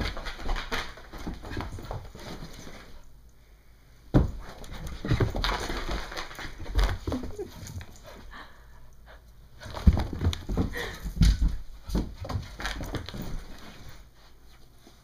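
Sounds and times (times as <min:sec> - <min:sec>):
puppy scuffling on carpet: 0:00.0 - 0:03.1, 0:09.6 - 0:15.0.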